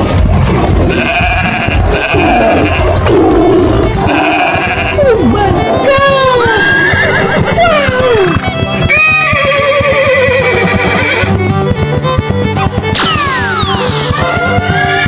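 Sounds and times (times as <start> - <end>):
animal bleating: 0.7 - 11.3
horse whinnying: 0.8 - 11.3, 13.0 - 15.0.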